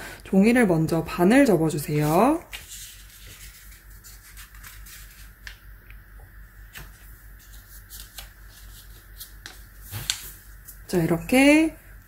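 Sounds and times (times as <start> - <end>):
paper rustling and crackling: 1.9 - 5.6, 6.6 - 10.8.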